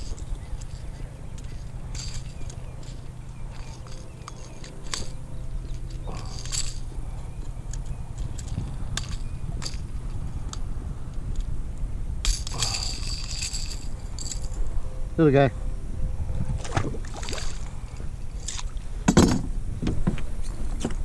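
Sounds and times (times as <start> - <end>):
fishing tackle clinking: 0.0 - 11.5, 12.2 - 14.7
wind rumble on microphone: 0.0 - 21.0.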